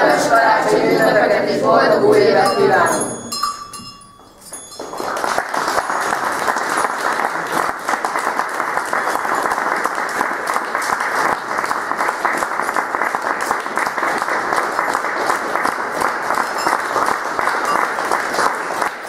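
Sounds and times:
audience applauding: 0:04.6 - 0:19.0.

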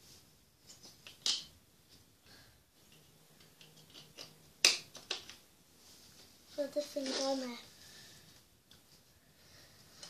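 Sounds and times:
small objects clicking and tapping: 0:00.6 - 0:01.6, 0:02.8 - 0:05.4.

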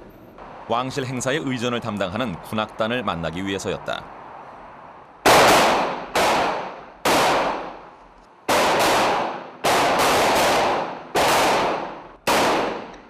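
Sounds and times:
rifle shots echoing: 0:05.3 - 0:07.8, 0:08.5 - 0:13.0.

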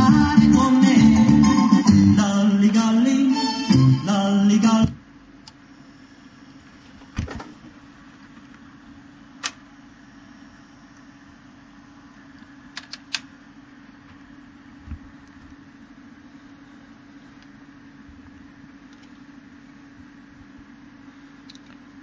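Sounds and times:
music from a record: 0:00.0 - 0:05.0.

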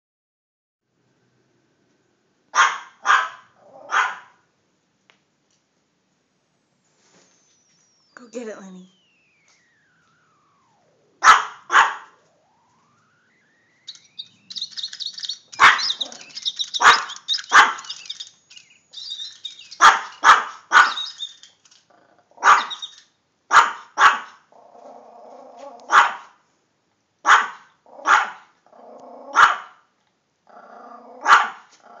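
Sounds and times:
small dog barking: 0:02.5 - 0:04.4, 0:11.2 - 0:12.2, 0:15.6 - 0:18.0, 0:19.8 - 0:21.2, 0:22.4 - 0:22.9, 0:23.5 - 0:24.4, 0:25.8 - 0:26.4, 0:27.2 - 0:28.5, 0:29.3 - 0:29.8, 0:31.2 - 0:31.8
small birds twittering: 0:07.6 - 0:21.7, 0:22.4 - 0:23.2.

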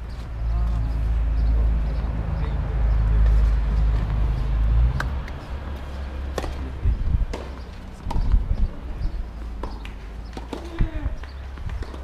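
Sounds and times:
tennis ball bouncing on clay: 0:05.0 - 0:08.8, 0:09.6 - 0:12.0
wind on microphone: 0:06.7 - 0:07.4, 0:08.0 - 0:09.4, 0:10.7 - 0:12.0.

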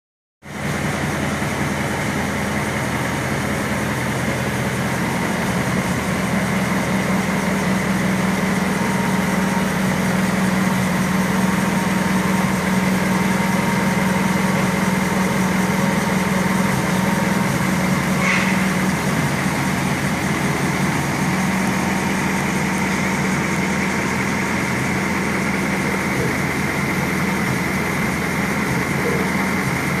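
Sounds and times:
engine idling: 0:00.4 - 0:30.0.

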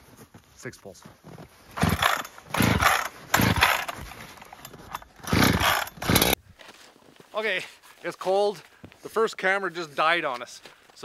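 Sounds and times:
chainsaw recoil starter pulls: 0:01.8 - 0:06.4.

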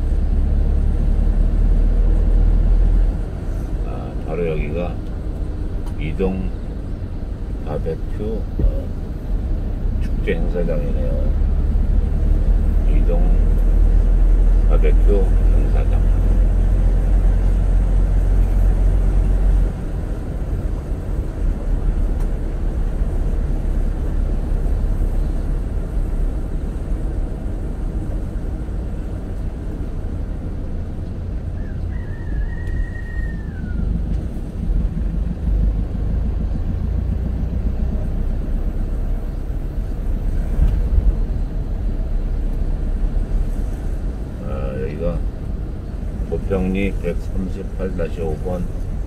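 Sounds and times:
car engine and tyre rumble: 0:00.0 - 0:49.0.

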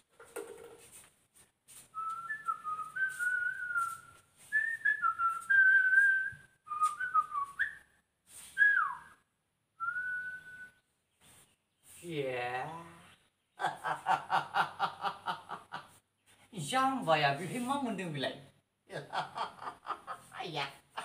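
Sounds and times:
man whistling a tune: 0:02.0 - 0:09.2, 0:09.8 - 0:10.8.

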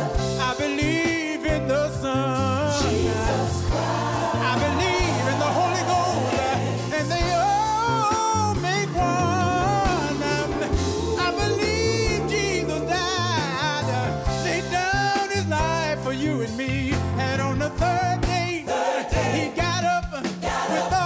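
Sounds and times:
voices singing with vibrato: 0:00.0 - 0:01.3, 0:02.6 - 0:14.8, 0:18.5 - 0:21.0
band with steady bass line: 0:00.0 - 0:21.0.

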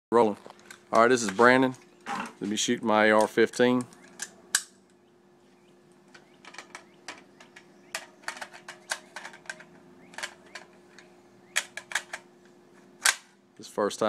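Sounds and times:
rifle clicks and rattles: 0:00.4 - 0:02.3, 0:03.1 - 0:05.0, 0:06.1 - 0:12.3.

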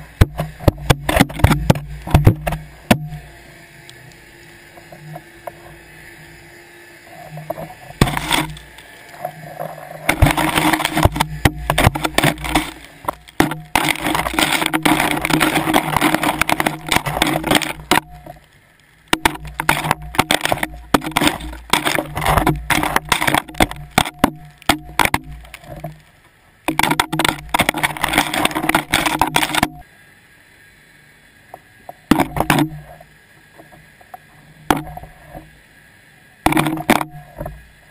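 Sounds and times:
camera housing scraping seabed: 0:00.2 - 0:03.0, 0:07.1 - 0:18.5, 0:19.2 - 0:26.1, 0:26.7 - 0:29.8, 0:32.1 - 0:33.1, 0:34.1 - 0:35.5, 0:36.5 - 0:37.7.

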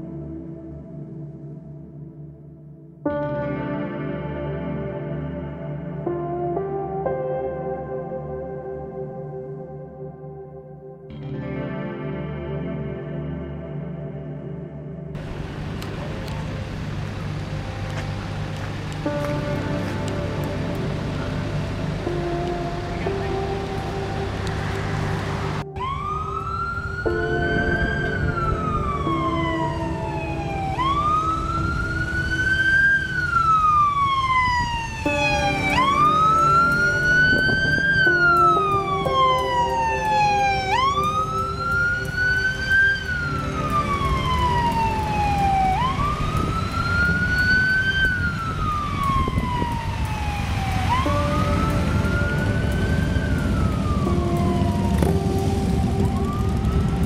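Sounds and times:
emergency siren wailing: 0:15.2 - 0:57.0
passing vehicles rumbling: 0:15.2 - 0:57.0.

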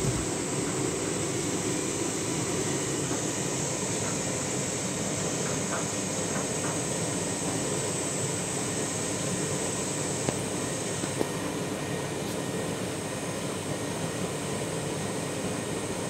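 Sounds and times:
washing machine churning water: 0:00.0 - 0:04.4.

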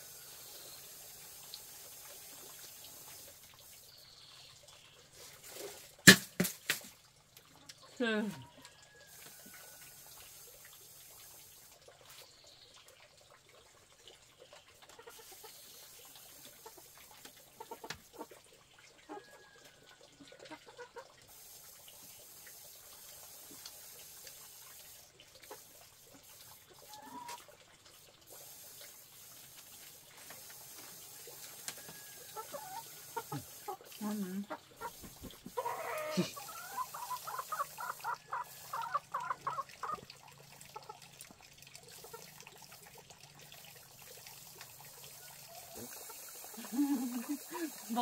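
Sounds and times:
chickens clucking: 0:14.5 - 0:18.4, 0:19.0 - 0:21.4, 0:25.5 - 0:27.5, 0:30.4 - 0:40.1.

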